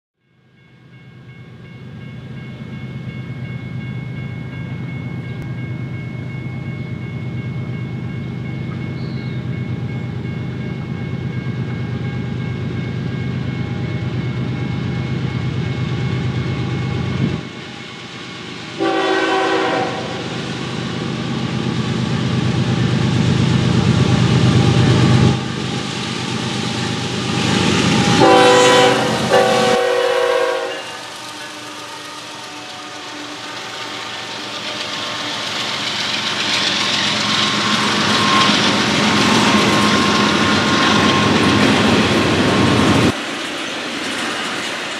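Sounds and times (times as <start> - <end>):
train wheel and rail noise: 0.2 - 44.9
diesel locomotive engines droning: 0.3 - 44.9
train air horn: 18.8 - 20.5, 28.1 - 35.6.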